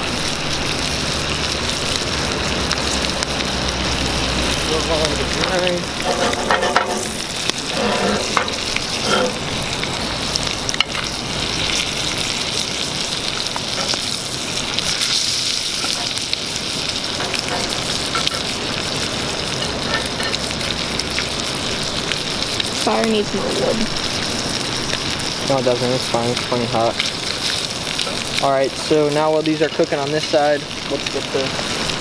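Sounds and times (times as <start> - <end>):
fish sizzling in butter: 0.0 - 32.0
knife scraping in pan: 5.9 - 9.6.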